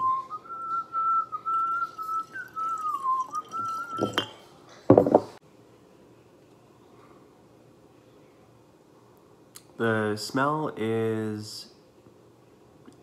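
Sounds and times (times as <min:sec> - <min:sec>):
person whistling a tune: 0:00.0 - 0:04.3
wine pouring into glass jar: 0:01.5 - 0:04.5.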